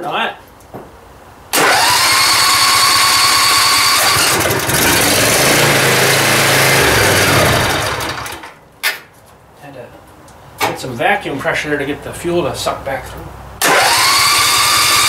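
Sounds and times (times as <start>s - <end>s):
electric starter cranking engine: 1.5s - 8.6s, 13.6s - 15.0s.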